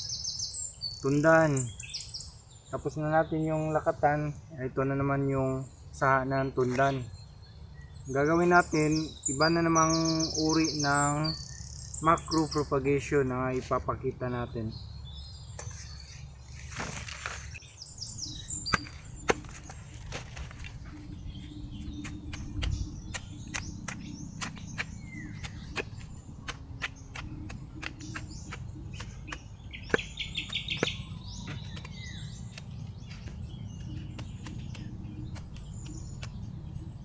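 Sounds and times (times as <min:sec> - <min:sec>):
birds chirping: 0:00.0 - 0:37.0
knife chopping: 0:18.7 - 0:20.4, 0:21.8 - 0:36.4.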